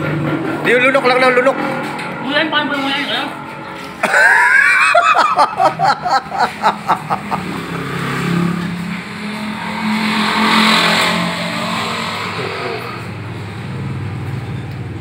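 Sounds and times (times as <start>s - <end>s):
vehicle engine passing: 0.0s - 15.0s
sharp pulses: 6.8s - 13.6s.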